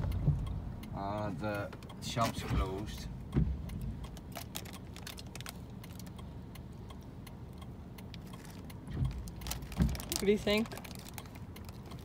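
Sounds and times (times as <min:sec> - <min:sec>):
plastic sweet bag crinkling: 0:04.3 - 0:06.1, 0:09.2 - 0:12.0.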